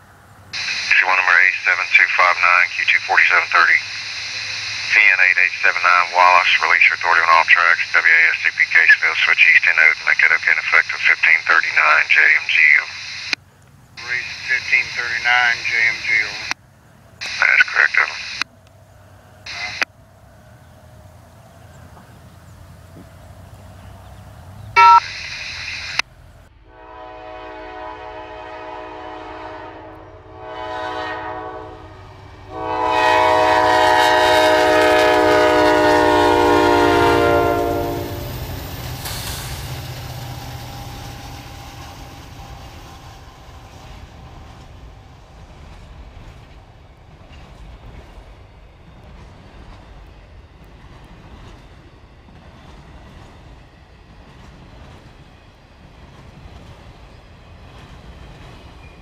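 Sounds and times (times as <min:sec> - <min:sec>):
freight train rumbling past: 0:00.0 - 0:59.0
locomotive air horn blasts: 0:26.7 - 0:31.9, 0:32.5 - 0:38.4.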